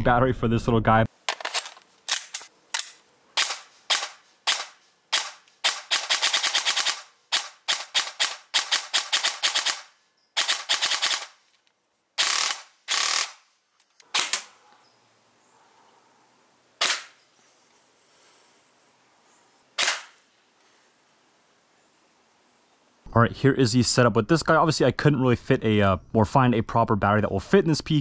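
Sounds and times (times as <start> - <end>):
airsoft rifle firing: 1.3 - 11.4, 12.2 - 13.4, 14.1 - 14.5, 16.8 - 17.2, 19.8 - 20.2.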